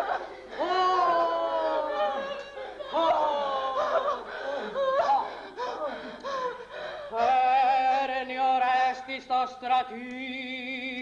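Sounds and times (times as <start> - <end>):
voices laughing and crying out: 0.0 - 5.4.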